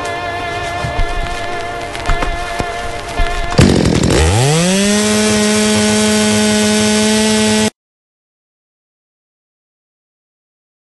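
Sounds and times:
chainsaw engine revving: 2.0s - 7.8s.

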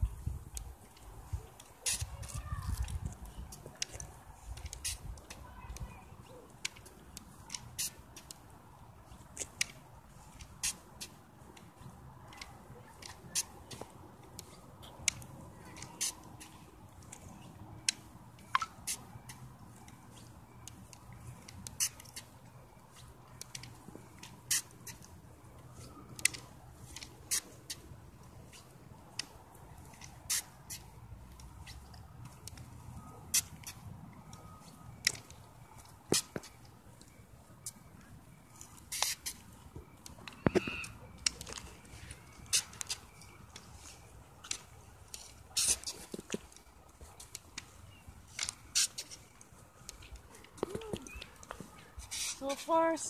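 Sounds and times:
wind rumble on microphone: 0.0s - 1.5s
outdoor background: 0.0s - 53.0s
crutches and shoes tapping on court: 6.5s - 52.7s.

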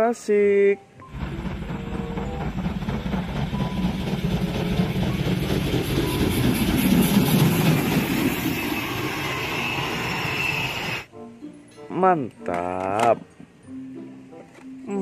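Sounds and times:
steam locomotive running past: 1.0s - 11.1s.

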